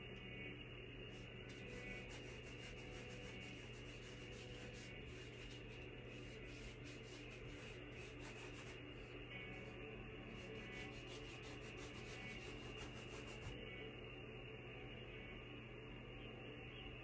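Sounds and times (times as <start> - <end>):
paintbrush scrubbing on canvas: 1.1 - 9.7, 10.3 - 13.6.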